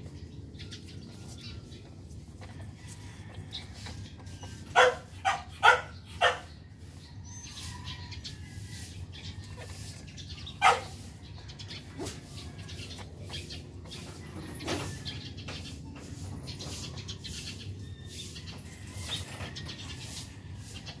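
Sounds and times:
dog yelping: 0:04.7 - 0:06.5, 0:10.6 - 0:10.9.

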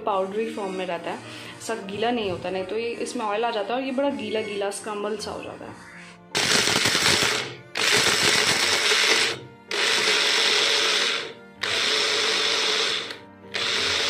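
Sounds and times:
mixer-grinder grinding nuts: 0:06.4 - 0:14.0.

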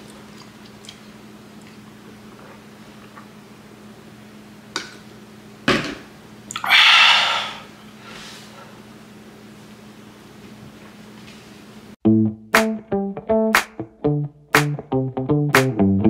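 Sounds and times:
low steady hum: 0:00.0 - 0:12.0
loud breathy burst: 0:06.6 - 0:08.5.

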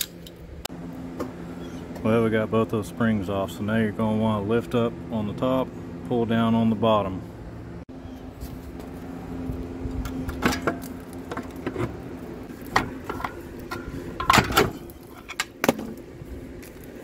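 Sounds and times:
low steady hum: 0:00.0 - 0:17.0
metal clanks and knocks: 0:10.3 - 0:12.0, 0:12.7 - 0:15.9.

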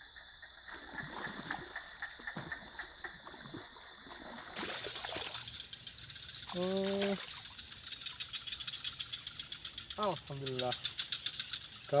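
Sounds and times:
fish thrashing and splashing: 0:03.4 - 0:05.6.

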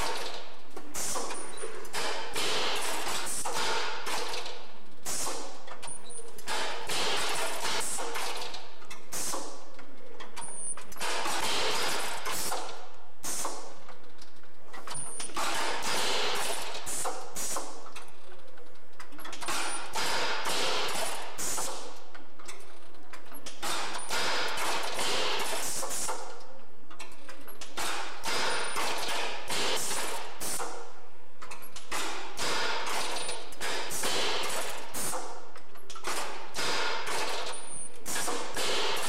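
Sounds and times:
machine with roller bars running: 0:00.0 - 0:12.8.

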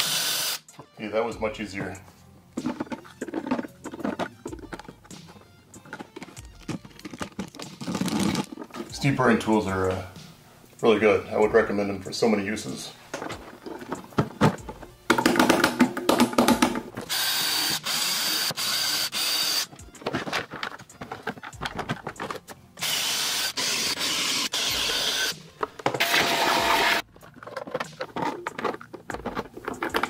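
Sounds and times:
drill boring through plastic: 0:00.0 - 0:00.7, 0:17.1 - 0:19.8, 0:22.8 - 0:25.3, 0:26.0 - 0:27.0
clicks and handling clatter: 0:01.8 - 0:09.0, 0:13.1 - 0:17.1, 0:19.7 - 0:22.6, 0:27.0 - 0:30.0.

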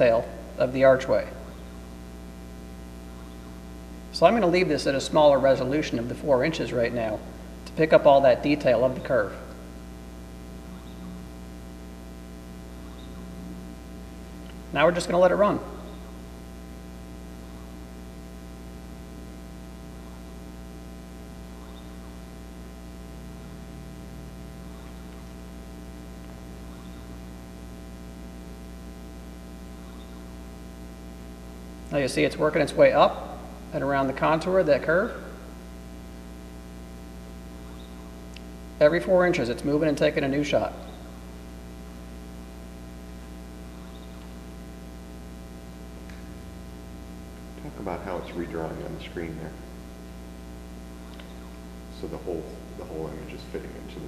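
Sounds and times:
electrical mains hum: 0:00.0 - 0:54.0
faint ticks: 0:51.0 - 0:51.6.

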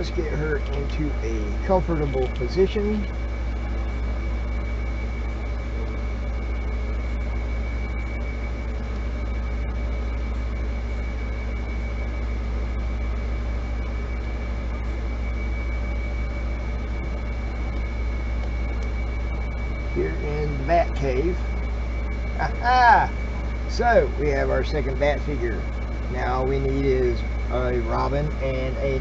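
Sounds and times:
high-pitched whine: 0:00.0 - 0:29.0
machine hum: 0:00.0 - 0:29.0.

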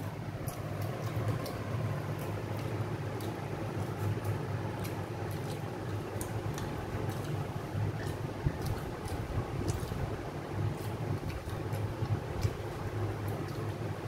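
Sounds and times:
chewing and mouth sounds: 0:00.0 - 0:14.0
low room hum: 0:00.0 - 0:14.0.

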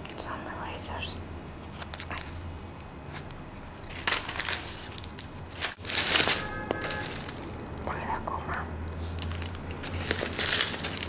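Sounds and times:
plastic bag crinkling and rustling: 0:03.1 - 0:11.0.

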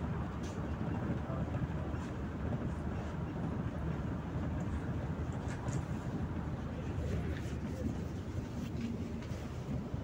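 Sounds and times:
bus engine and road noise: 0:00.0 - 0:10.0.

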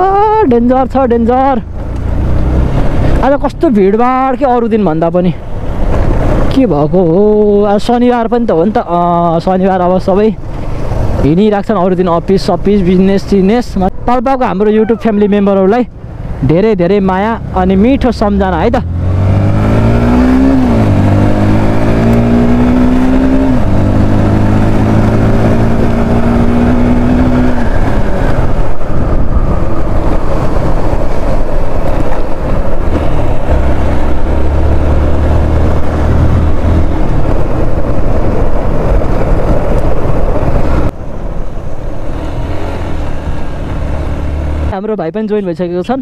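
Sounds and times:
wind rushing over microphone: 0:00.0 - 0:44.8
motorcycle engine accelerating: 0:17.0 - 0:44.8.

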